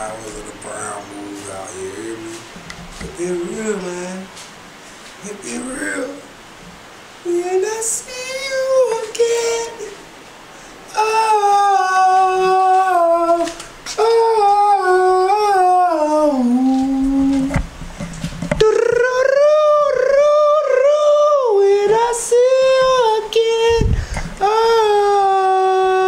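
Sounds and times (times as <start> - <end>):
man singing long notes: 3.1 - 4.4, 5.2 - 6.4, 7.2 - 10.0, 10.9 - 17.6, 18.6 - 26.0.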